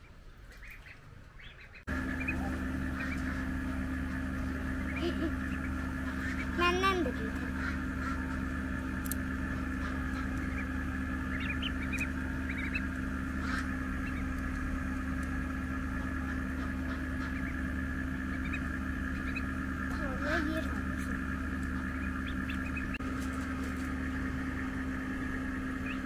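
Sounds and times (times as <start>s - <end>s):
duckling peeps: 0.4s - 23.7s, 25.8s - 26.0s
steady hum: 1.8s - 26.0s.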